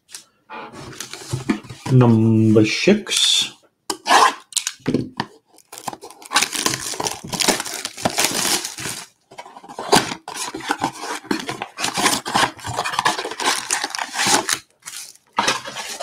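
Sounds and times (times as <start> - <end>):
cardboard box being torn open: 5.7 - 9.0.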